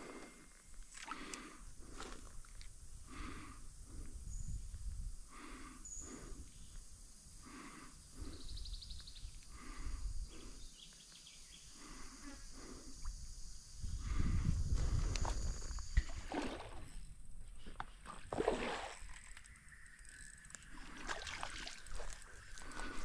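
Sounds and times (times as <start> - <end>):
person breathing: 0.0 - 2.3, 3.0 - 4.3, 5.3 - 6.8, 7.4 - 8.6, 9.5 - 10.8, 11.6 - 13.1, 13.8 - 15.5, 22.2 - 23.0
wind rumble on microphone: 2.7 - 5.3, 13.0 - 17.6.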